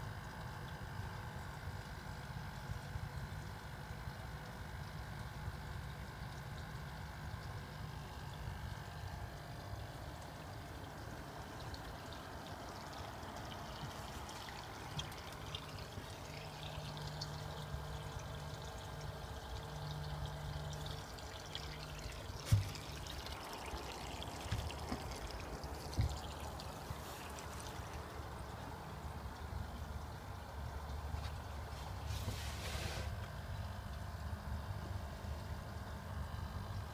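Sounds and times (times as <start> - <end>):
low steady hum: 0.0 - 36.9
water pouring and trickling: 0.1 - 36.9.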